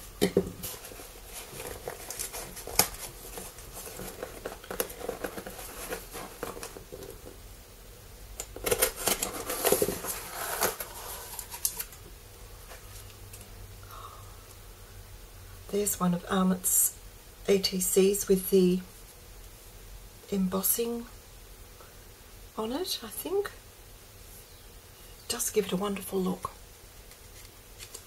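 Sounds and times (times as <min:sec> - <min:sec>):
cardboard and paper rustling: 0:00.4 - 0:07.4, 0:08.6 - 0:12.0.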